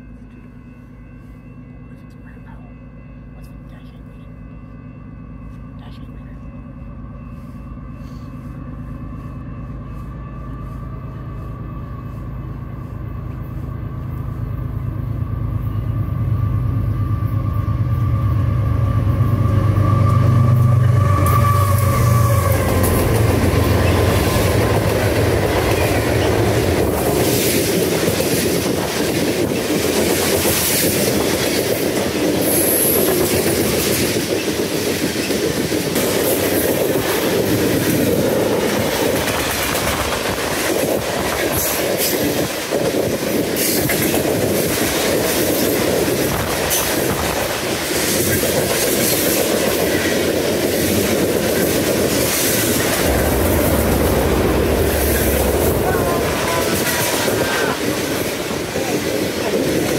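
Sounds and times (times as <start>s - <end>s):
diesel locomotive drone: 0.0s - 59.9s
train cars clattering on rails: 19.2s - 59.9s.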